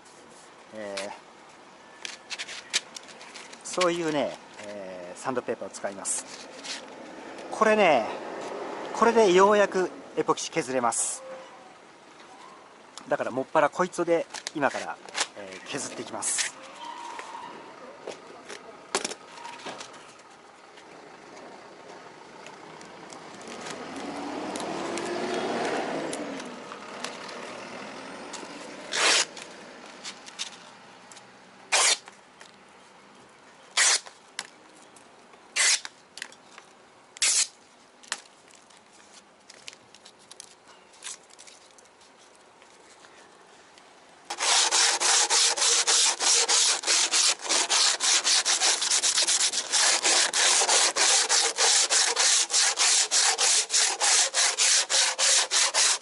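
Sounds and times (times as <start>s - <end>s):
sandpaper sheets scraping: 28.9s - 29.3s, 31.7s - 32.0s, 35.6s - 35.9s, 44.3s - 56.0s
hand sanding back and forth: 44.3s - 56.0s.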